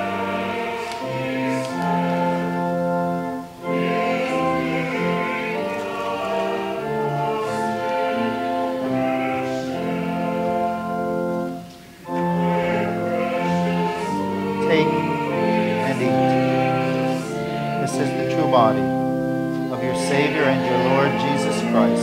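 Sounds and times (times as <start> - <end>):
sustained accompaniment: 0.0 - 22.0
voices singing a hymn: 0.0 - 22.0.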